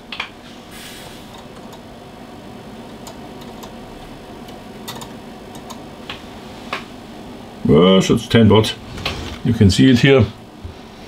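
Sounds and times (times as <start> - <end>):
low background hum and hiss: 0.0 - 11.0.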